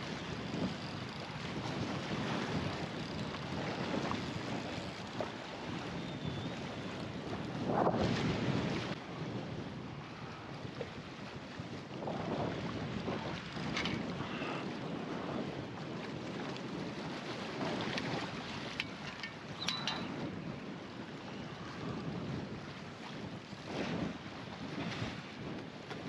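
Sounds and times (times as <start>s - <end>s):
choppy sea water: 0.0s - 26.0s
wind on microphone: 0.0s - 26.0s.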